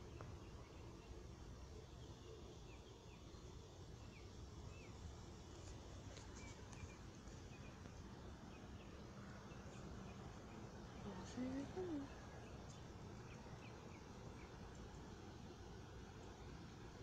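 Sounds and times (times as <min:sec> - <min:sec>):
faint bird chirps: 0:00.0 - 0:15.2.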